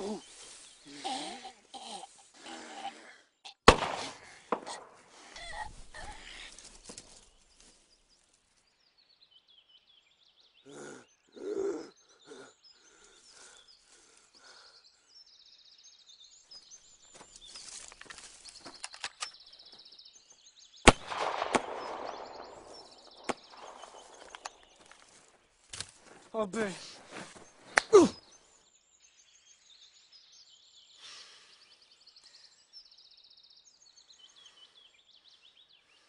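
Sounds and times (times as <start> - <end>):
birds chirping: 0.0 - 36.0
sharp crack: 3.6 - 5.0, 20.9 - 24.8.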